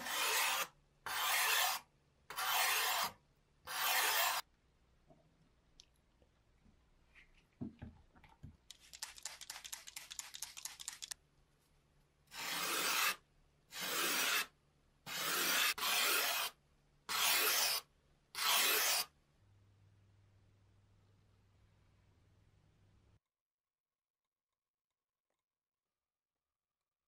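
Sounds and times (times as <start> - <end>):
rapid rasping scratches: 0.0 - 4.4, 12.3 - 13.2, 13.8 - 14.5, 15.1 - 17.8
rough rubbing strokes: 0.0 - 4.4, 12.3 - 13.2.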